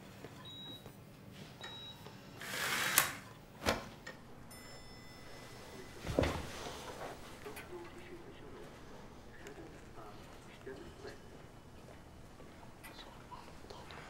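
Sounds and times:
patient monitor beep: 0.3s - 2.3s, 4.2s - 14.0s.

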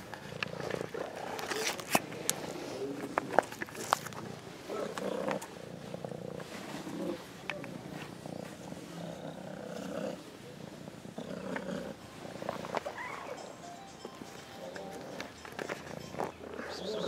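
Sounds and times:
handling clicks and rustles: 0.0s - 5.6s, 11.5s - 16.8s
cat purring: 2.4s - 13.6s.

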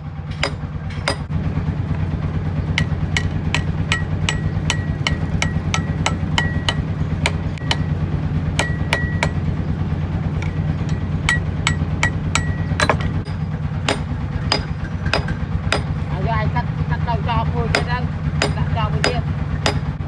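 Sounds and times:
steady low hum: 0.0s - 20.0s
hammer striking metal on anvil: 0.3s - 1.3s, 2.8s - 8.0s, 8.6s - 9.5s, 10.4s - 16.1s, 17.6s - 20.0s.

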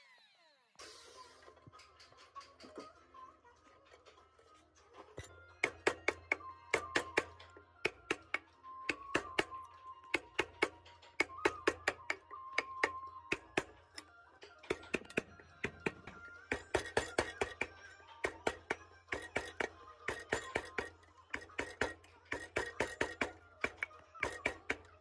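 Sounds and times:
chisel cracking wood: 5.6s - 13.8s.

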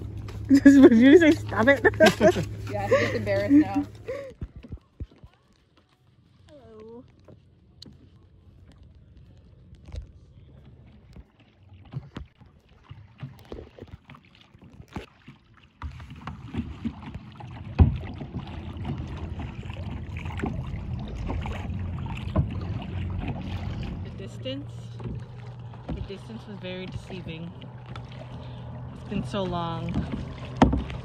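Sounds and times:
rush of wind and water: 0.0s - 5.6s, 6.2s - 31.0s
paddle knocking on kayak hull: 15.8s - 24.0s, 24.9s - 28.3s, 29.2s - 31.0s.

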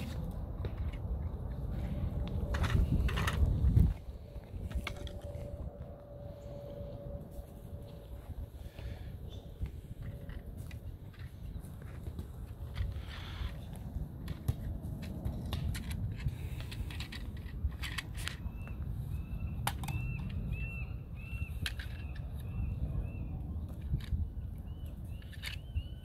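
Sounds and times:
bird chirping: 18.4s - 23.7s, 24.3s - 26.0s.

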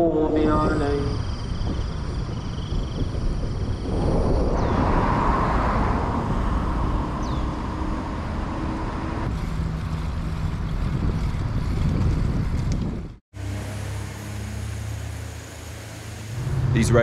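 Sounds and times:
wind rumble on microphone: 0.0s - 13.2s
road noise: 0.0s - 17.0s
traffic hiss: 13.4s - 17.0s.

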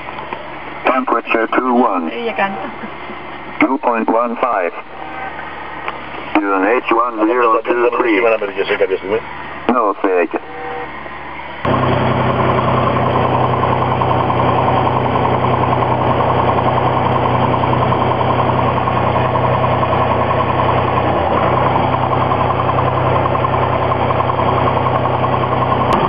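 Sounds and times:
aircraft engine and propeller: 11.6s - 26.0s.

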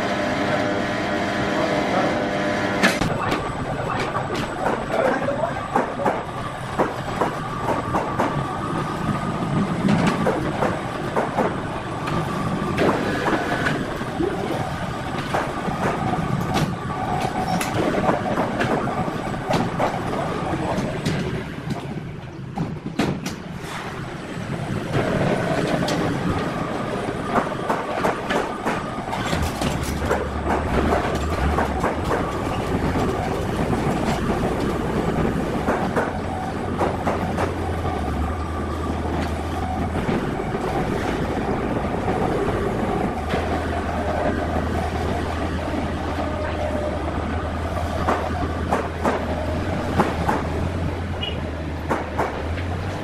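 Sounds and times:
clanks and rattles: 25.0s - 37.7s.

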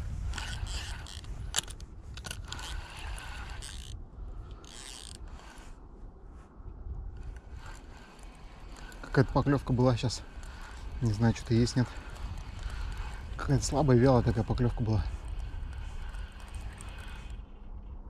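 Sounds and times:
wind on microphone: 0.0s - 18.0s
fishing reel clicking: 0.2s - 5.6s, 7.2s - 17.9s.

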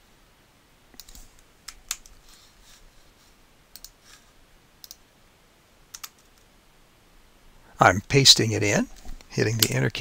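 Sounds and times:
mouse and keyboard clicks: 1.0s - 2.2s, 3.7s - 4.2s, 4.8s - 5.0s, 5.9s - 6.5s.

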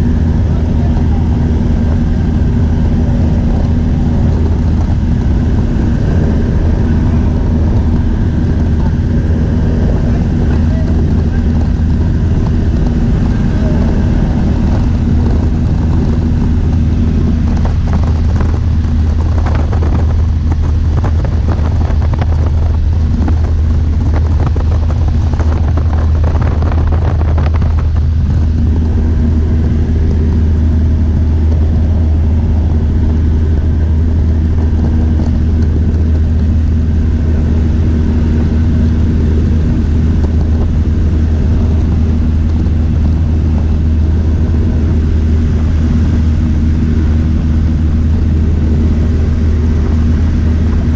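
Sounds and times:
light airplane engine droning: 0.0s - 50.9s.

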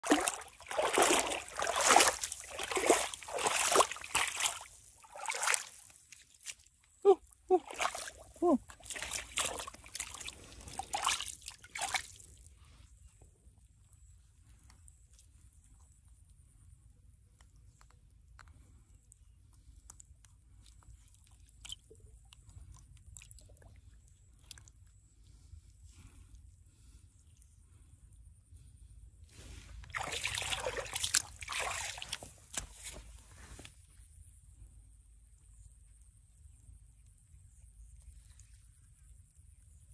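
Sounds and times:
footsteps splashing through water: 0.0s - 12.4s, 29.8s - 33.2s
fish squelching over wet mud: 0.0s - 27.6s, 29.4s - 33.8s.

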